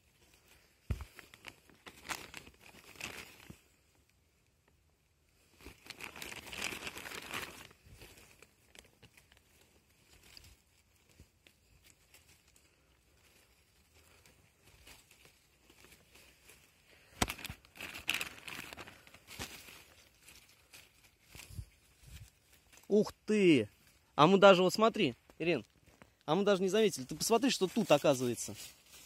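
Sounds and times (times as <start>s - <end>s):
dry leaves and twigs rustling: 0.0s - 29.0s
twig snapping: 17.1s - 18.3s.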